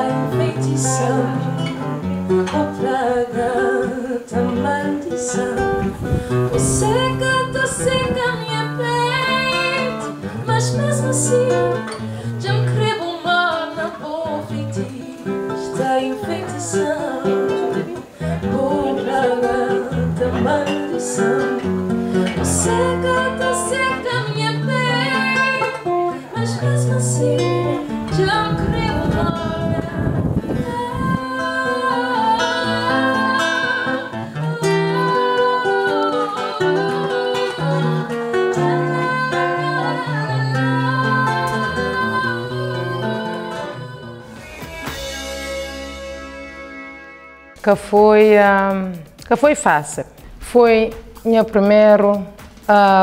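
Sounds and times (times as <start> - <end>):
song with acoustic guitar and vocals: 0.0 - 53.0
walking bass line: 5.6 - 9.7.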